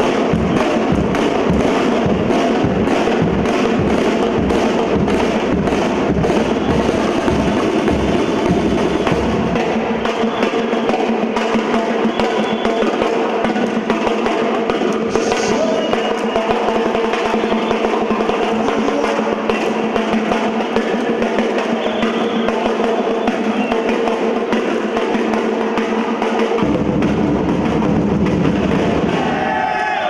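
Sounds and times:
bass drums pounding: 0.0s - 10.0s, 26.6s - 29.6s
snare drums rattling: 0.0s - 29.7s.

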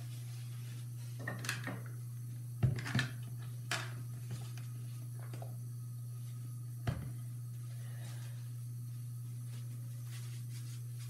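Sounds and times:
paper towels rustling: 0.0s - 1.2s, 7.5s - 11.0s.

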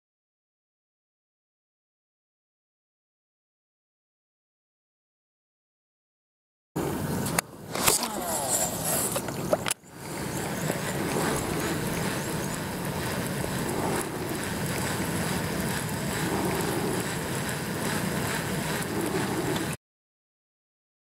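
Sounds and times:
water noise: 6.8s - 19.8s
wind: 6.8s - 19.8s.

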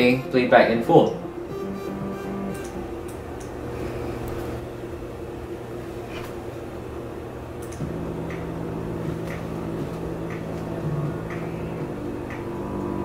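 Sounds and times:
electronic synthesizer music: 0.0s - 3.2s, 7.8s - 13.0s.

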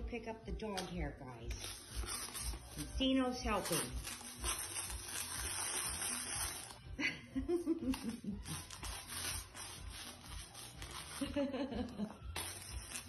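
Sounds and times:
rubber broom scraping floor: 1.6s - 6.8s, 8.4s - 11.5s.

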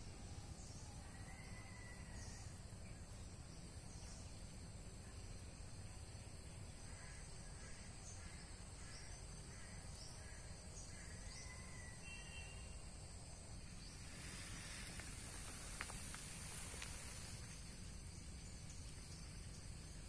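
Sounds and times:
high insect drone: 0.0s - 20.0s.

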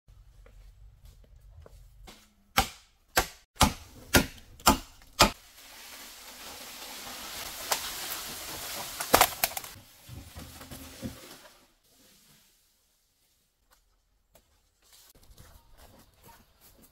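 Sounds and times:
sharp chopping strikes: 2.5s - 5.4s.

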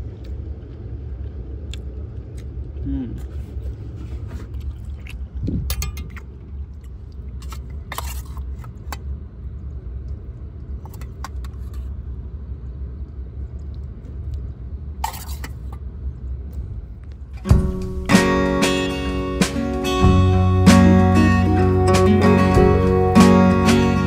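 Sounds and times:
metal containers clinking: 5.7s - 6.3s, 15.0s - 15.8s
low vehicle rumble: 15.8s - 24.0s.

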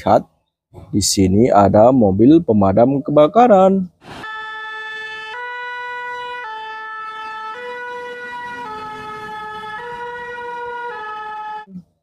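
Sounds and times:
fire engine two-tone siren: 4.1s - 12.0s.

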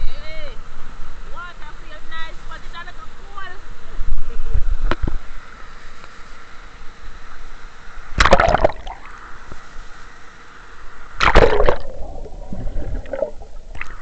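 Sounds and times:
water splashing over camera: 8.2s - 9.1s, 11.2s - 14.0s.

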